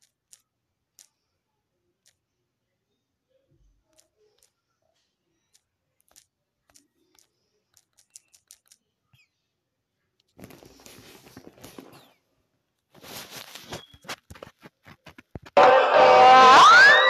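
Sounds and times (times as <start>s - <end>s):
scraping rustling noise: 10.4s - 12.2s, 12.9s - 15.6s.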